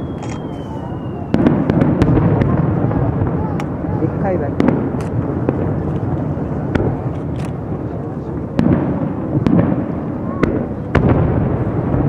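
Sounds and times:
fireworks bursting: 0.0 - 12.0
low rumble of fireworks: 0.0 - 12.0.

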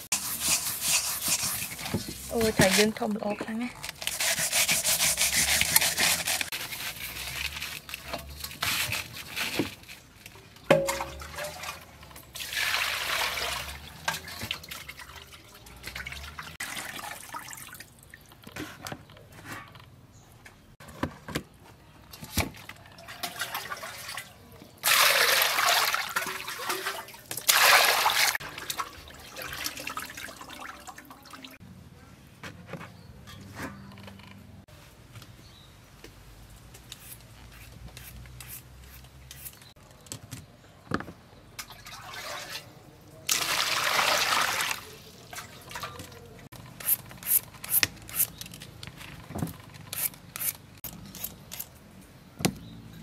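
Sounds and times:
water pouring and splashing: 5.2 - 18.5, 22.5 - 31.6, 41.6 - 46.6.

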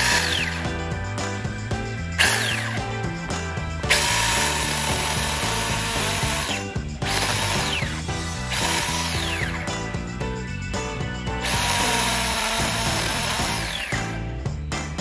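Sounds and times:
mini chainsaw running: 0.0 - 0.9, 2.0 - 9.7, 11.4 - 14.3
background music with beat: 0.0 - 15.0.

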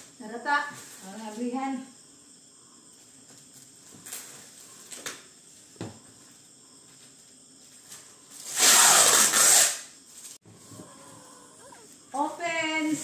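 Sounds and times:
plastic wrap ripping: 8.4 - 9.9.

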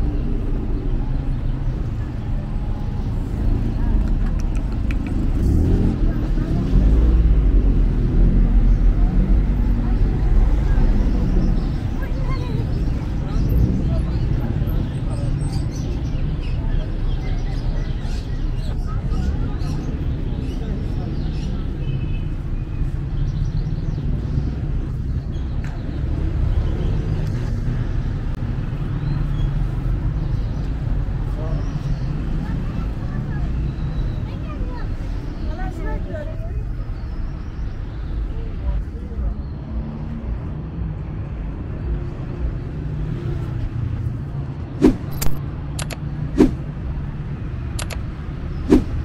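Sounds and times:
road traffic rumble: 0.0 - 49.0
sharp clicks: 4.0 - 5.2, 44.8 - 46.6, 47.7 - 48.9.

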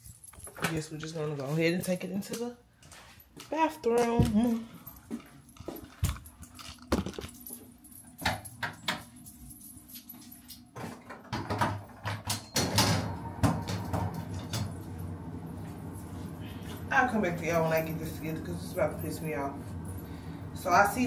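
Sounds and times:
metal parts clinking and rattling: 5.5 - 10.7
steady low hum: 12.8 - 21.0.

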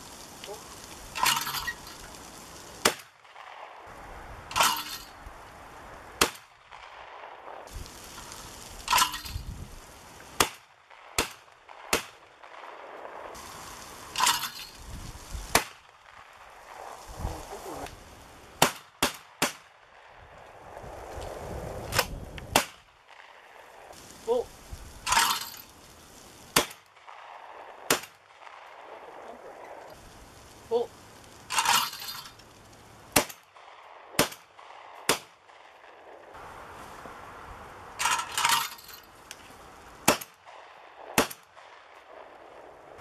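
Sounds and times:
shotgun shots: 10.4 - 13.4, 18.6 - 19.8, 21.9 - 23.4, 26.6 - 29.3, 33.1 - 36.0, 40.0 - 41.9.

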